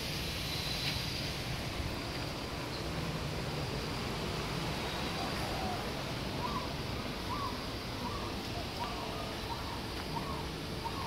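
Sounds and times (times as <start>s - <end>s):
steady background noise: 0.0s - 11.0s
bird calling: 4.8s - 11.0s.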